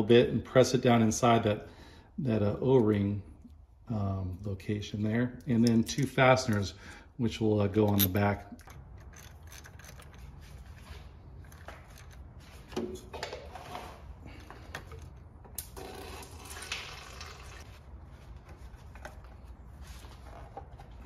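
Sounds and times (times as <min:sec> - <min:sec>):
small metal clicks and scrapes: 0:07.8 - 0:10.8.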